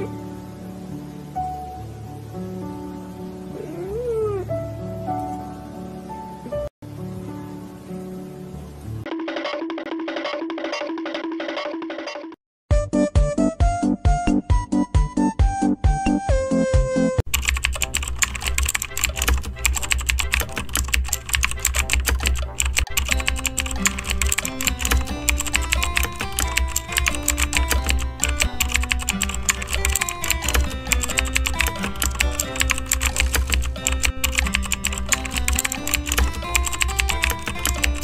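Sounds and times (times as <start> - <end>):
background music with bass: 12.7 - 17.2
keyboard typing: 17.3 - 38.0.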